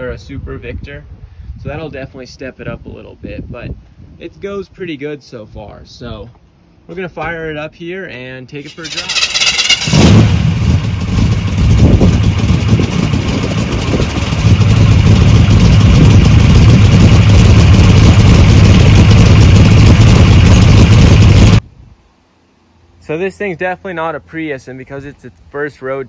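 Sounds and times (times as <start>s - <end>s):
car engine running: 8.8s - 21.6s.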